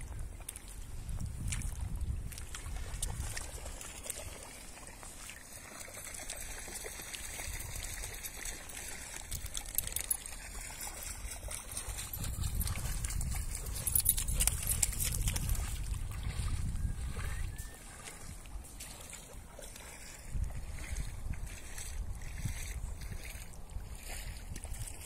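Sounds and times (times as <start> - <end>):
wind buffeting microphone: 0.0 - 3.8, 11.0 - 18.8, 20.0 - 25.0
water lapping at shore: 0.0 - 25.0.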